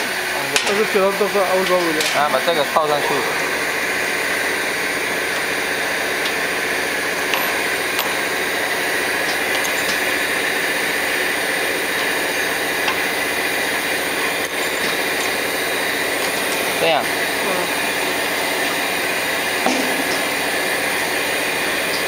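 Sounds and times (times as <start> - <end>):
factory machine noise: 0.0 - 22.0
spanner clicks: 7.2 - 15.4.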